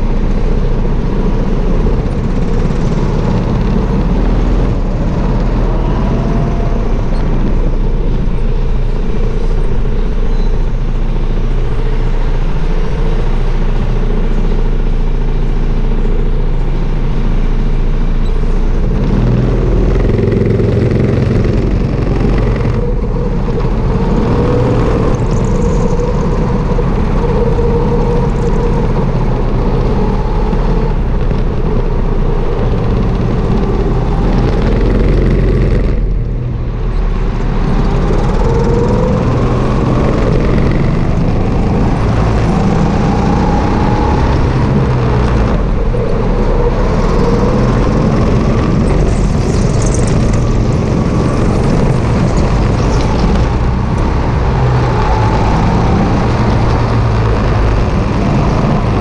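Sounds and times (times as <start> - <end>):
go-kart engine running: 0.0 - 59.0.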